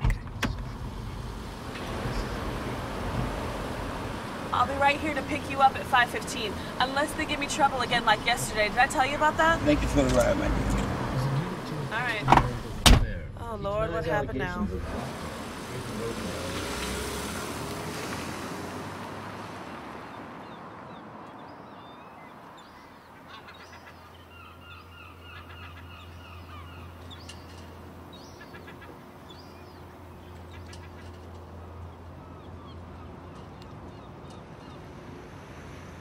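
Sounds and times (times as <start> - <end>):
low steady hum: 0.0 - 16.4
street noise: 0.0 - 36.0
birds calling: 0.5 - 12.8, 15.0 - 36.0.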